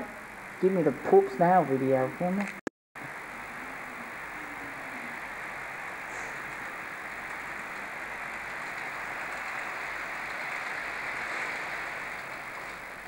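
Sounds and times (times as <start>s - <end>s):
model train running on track: 3.0s - 13.0s.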